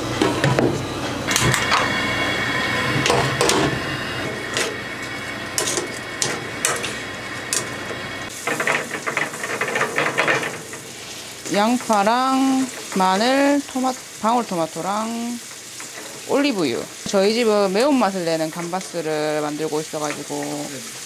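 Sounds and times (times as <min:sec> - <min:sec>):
shrimp frying in oil: 0:01.4 - 0:21.0
tongs clicking and scraping pan: 0:08.4 - 0:10.9.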